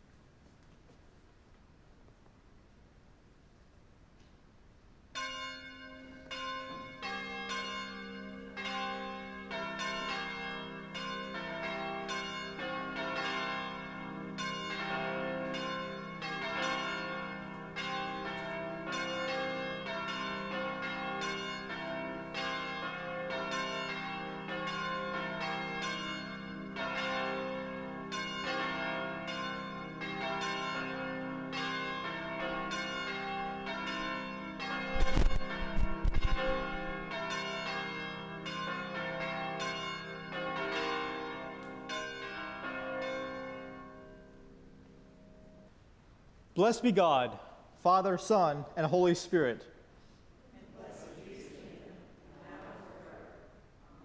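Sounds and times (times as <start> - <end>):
church bells ringing: 5.1 - 45.7.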